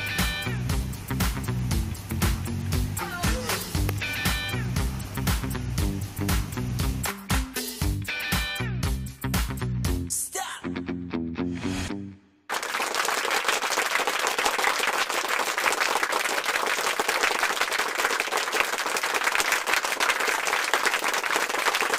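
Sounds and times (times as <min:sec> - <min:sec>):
background music: 0:00.0 - 0:12.2
crowd applauding: 0:12.5 - 0:21.9.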